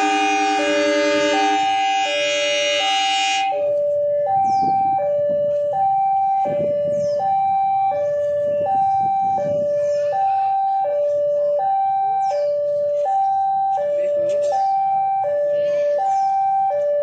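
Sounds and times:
locomotive horn: 0.0 - 3.7
two-tone warning alarm: 0.0 - 17.0.

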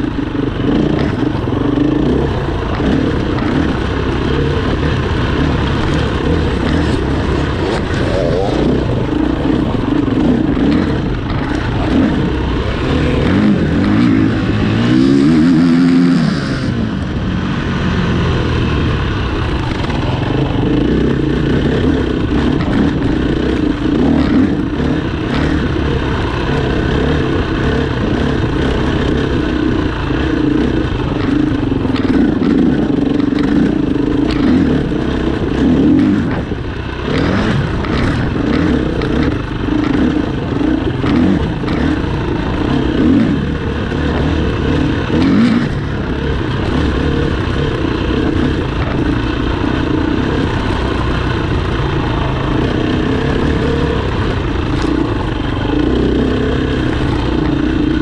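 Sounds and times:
engine passing by: 0.0 - 58.0
racing engines running: 0.0 - 58.0.

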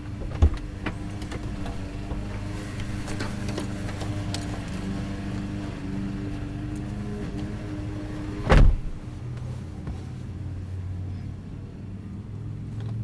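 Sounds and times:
car engine hum from inside: 0.0 - 13.0
heavy thump: 8.4 - 9.0.

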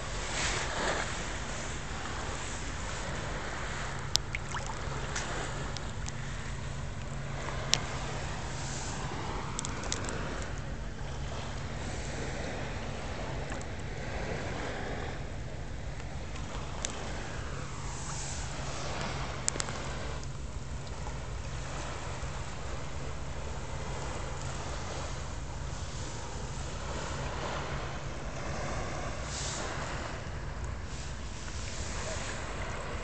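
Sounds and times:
water lapping against rocks: 0.1 - 12.3
low hum: 0.9 - 31.7.

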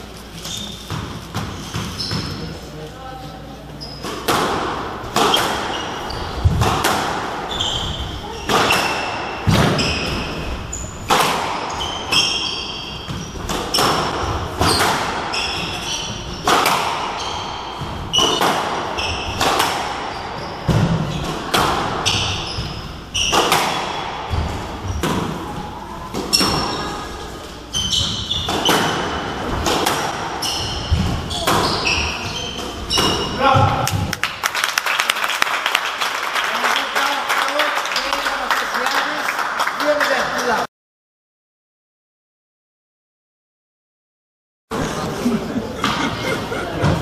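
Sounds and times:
shoes squeaking on wooden floor: 0.2 - 2.6, 5.2 - 6.6, 7.5 - 11.1, 11.7 - 25.2, 26.2 - 33.8.

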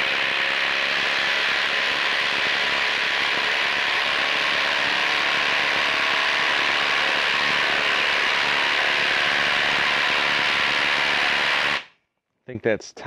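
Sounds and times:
impact driver hammering: 0.0 - 11.9.

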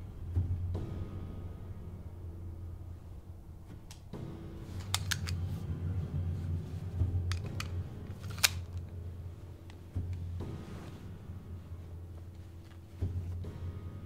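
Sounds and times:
steady low hum: 0.0 - 14.0
handheld device clicks: 4.8 - 5.4, 7.3 - 8.9.

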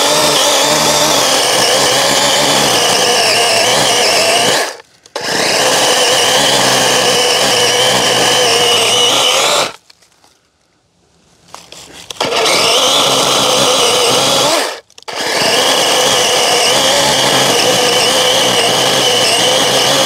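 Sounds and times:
electric chainsaw cutting stump: 0.0 - 9.8, 12.0 - 20.0.

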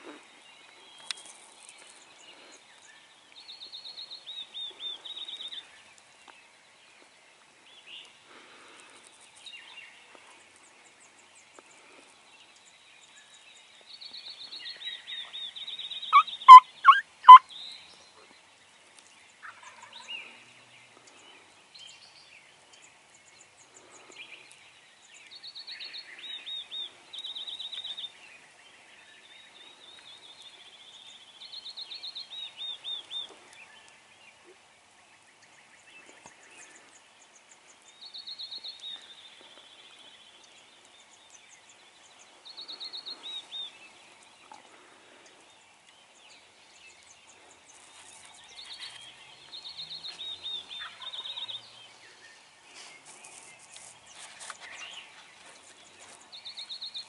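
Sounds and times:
songbird singing falling notes: 13.8 - 17.9
turkey gobbling: 16.1 - 17.4, 50.8 - 51.2.

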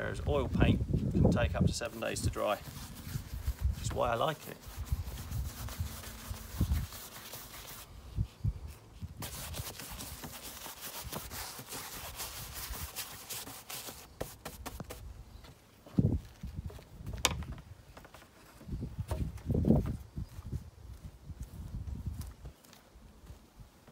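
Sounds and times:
paintbrush scrubbing and slapping: 1.8 - 7.9, 9.0 - 15.0.

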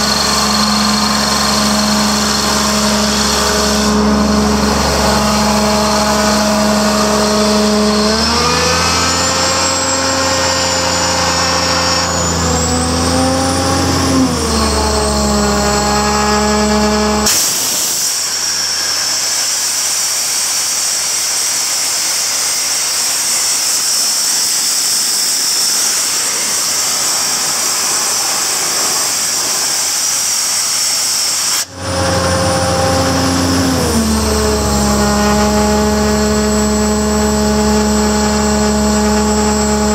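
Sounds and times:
air compressor engine drone: 0.0 - 39.9
hiss of rushing air: 17.3 - 20.6.

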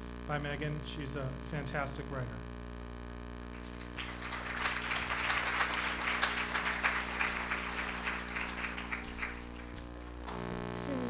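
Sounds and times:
audience applauding: 3.5 - 10.4.

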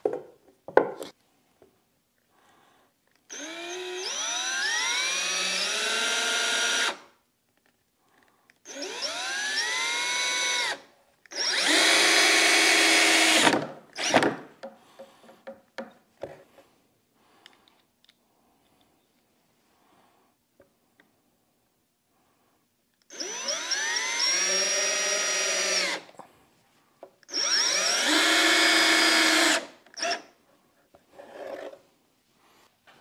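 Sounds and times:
cordless drill driving screws: 3.3 - 7.0, 8.7 - 14.3, 23.1 - 26.0, 27.3 - 30.3.

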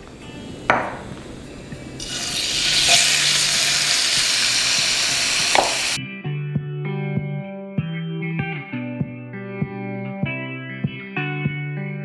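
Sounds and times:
chicken sizzling in oil: 0.3 - 6.0.

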